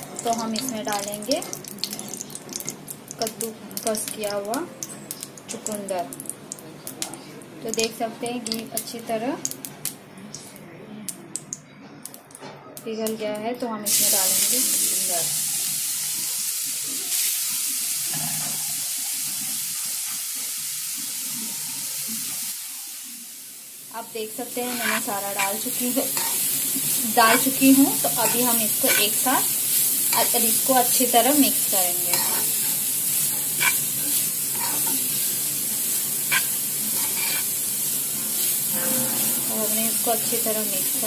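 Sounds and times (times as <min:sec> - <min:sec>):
beetroot sizzling in a frying pan: 0:00.0 - 0:10.5, 0:12.8 - 0:41.0
spatula scraping a pan: 0:24.6 - 0:29.5, 0:32.0 - 0:35.1, 0:36.2 - 0:37.6.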